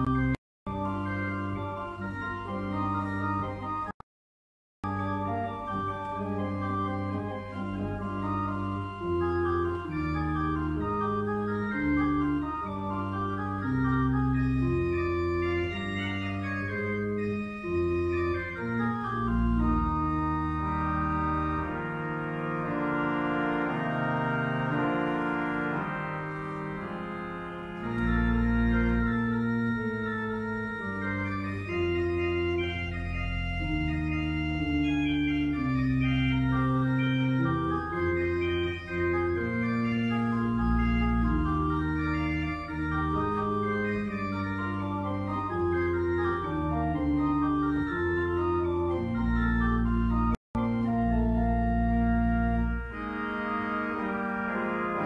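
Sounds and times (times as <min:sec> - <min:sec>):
pipe organ playing: 0:00.0 - 0:04.0, 0:04.8 - 0:55.0.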